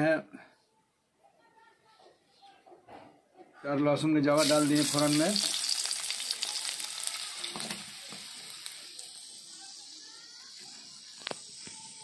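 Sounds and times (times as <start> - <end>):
garlic sizzling in hot oil: 4.3 - 12.0.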